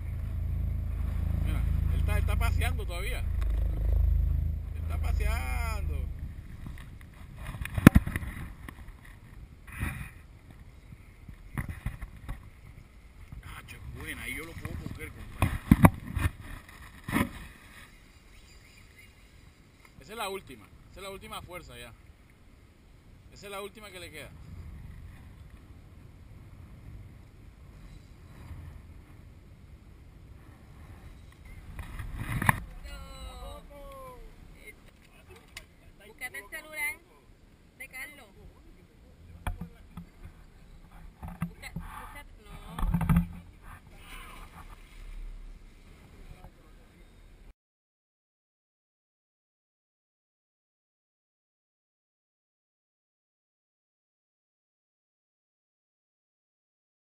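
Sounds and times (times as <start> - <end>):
wind noise: 0.0 - 18.5, 24.3 - 34.6
water noise: 0.0 - 47.5.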